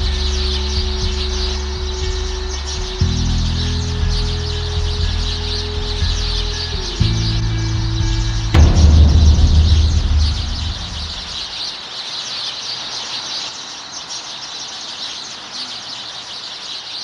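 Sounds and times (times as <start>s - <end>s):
sustained music: 3.4s - 11.5s
deep cinematic boom: 7.0s - 11.5s.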